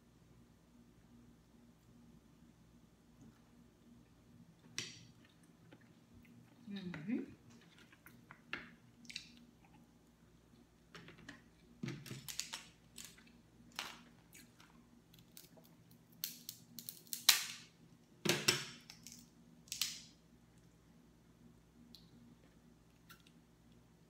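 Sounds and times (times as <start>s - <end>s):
crab shell cracking: 14.4s - 17.7s, 18.8s - 20.2s.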